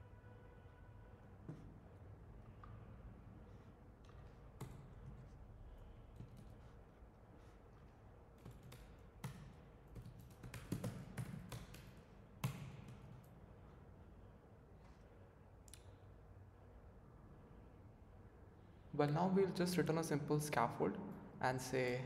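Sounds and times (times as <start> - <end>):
keyboard typing: 8.4 - 13.4.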